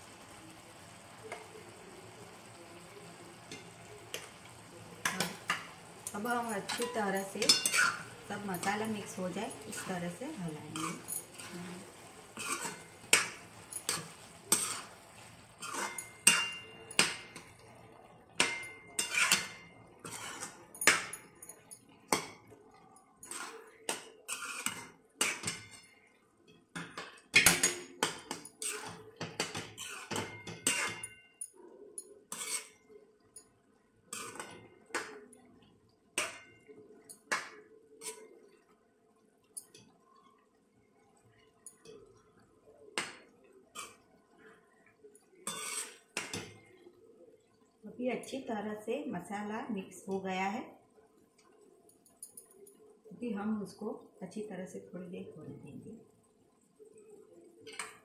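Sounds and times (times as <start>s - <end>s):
steel ladle scraping metal pan: 6.5s - 10.0s, 10.6s - 11.6s, 12.4s - 15.0s, 15.6s - 17.5s, 18.4s - 21.0s, 23.2s - 23.6s, 24.3s - 25.8s, 28.6s - 29.0s, 29.7s - 31.1s, 32.3s - 32.8s, 45.4s - 46.1s.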